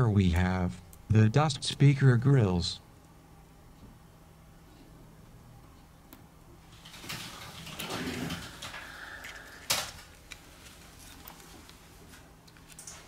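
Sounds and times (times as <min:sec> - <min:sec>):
scraping and handling: 0:06.7 - 0:13.0.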